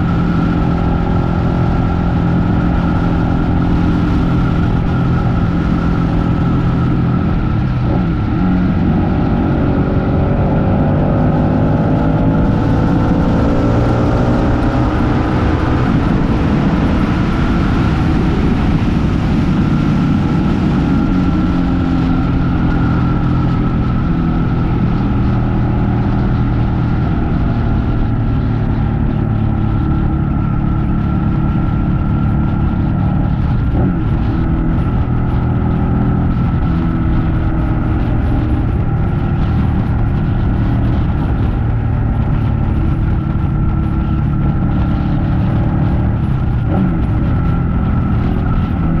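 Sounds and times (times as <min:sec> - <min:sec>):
motorcycle engine running: 0:00.0 - 0:49.0.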